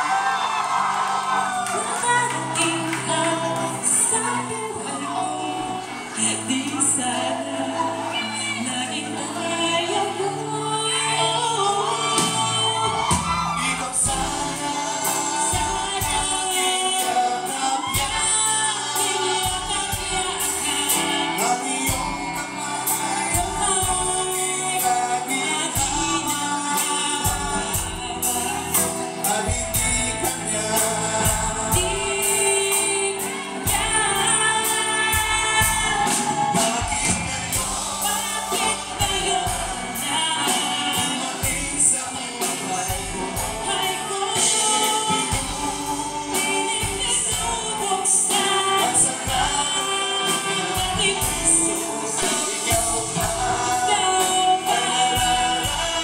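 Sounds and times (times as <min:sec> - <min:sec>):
bass guitar: 0:00.0 - 0:56.0
electric guitar: 0:00.0 - 0:56.0
female vocals: 0:01.4 - 0:56.0
male vocals: 0:02.4 - 0:56.0
steady drum beat: 0:12.2 - 0:56.0.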